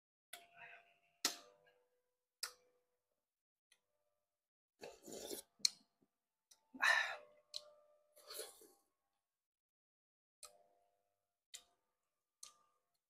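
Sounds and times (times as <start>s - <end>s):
spoon scraping bowl: 4.8s - 5.5s, 8.2s - 8.7s
slurping porridge: 4.8s - 5.8s, 8.2s - 8.8s.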